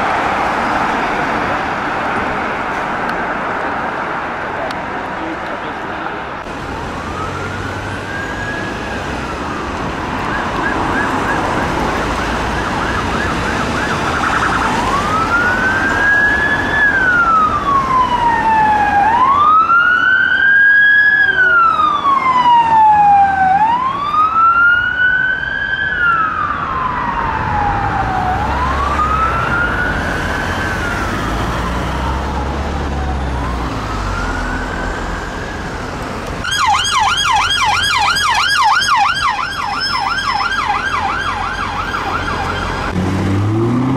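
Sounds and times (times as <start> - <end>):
road traffic rumble: 0.0 - 43.9
police siren wailing: 6.4 - 43.9
siren yelp warble: 20.5 - 31.3, 36.4 - 43.0.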